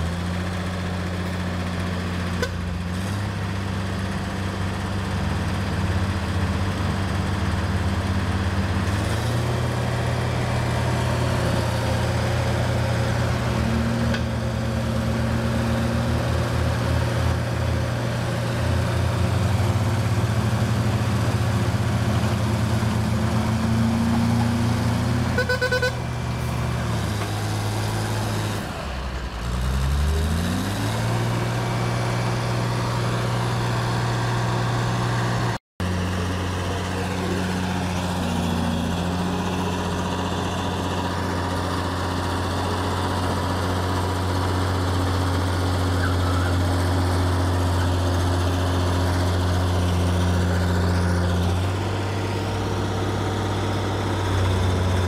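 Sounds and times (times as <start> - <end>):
heavy diesel engines running: 0.0 - 55.0
engine revving up: 26.4 - 55.0.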